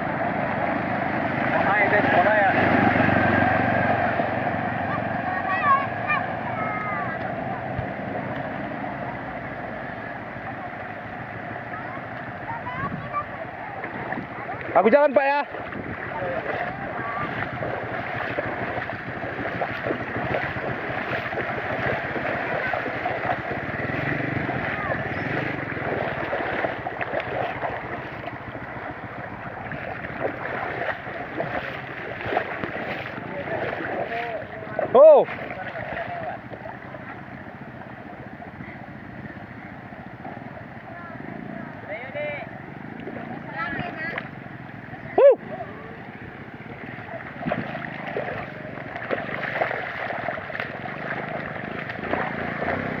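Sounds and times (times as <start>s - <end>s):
splashing footsteps in water: 0.0s - 38.4s, 42.4s - 53.0s
floodwater sloshing and splashing: 0.0s - 53.0s
small motorcycle engine running: 0.0s - 53.0s.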